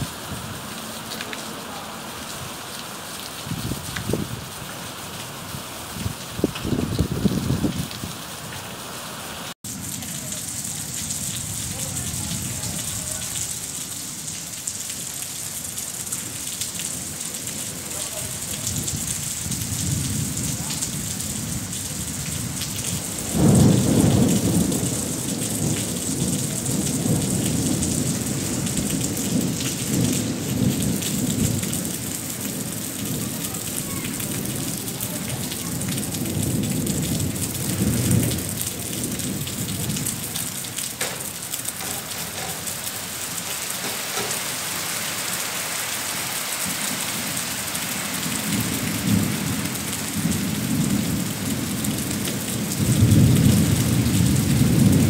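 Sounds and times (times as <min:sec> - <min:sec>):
steady rain falling: 0:00.0 - 0:55.0
thunder rumbling: 0:18.5 - 0:40.7, 0:48.1 - 0:55.0.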